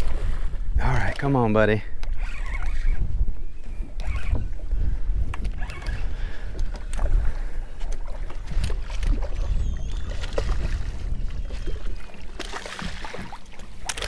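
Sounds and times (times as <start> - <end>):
wind buffeting microphone: 0.0 - 14.0
fish thrashing in water: 8.0 - 14.0.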